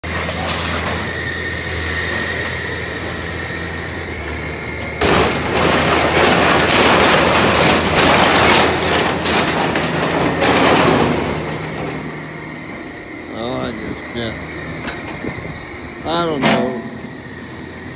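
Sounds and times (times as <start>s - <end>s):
excavator engine whine: 0.0s - 17.9s
sheet metal crunching and clattering: 5.0s - 12.2s, 16.1s - 17.8s.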